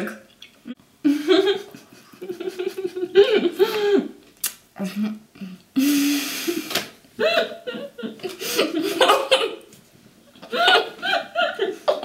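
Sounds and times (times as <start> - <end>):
women laughing with full mouths: 1.0 - 4.2, 5.8 - 9.7, 10.3 - 12.0.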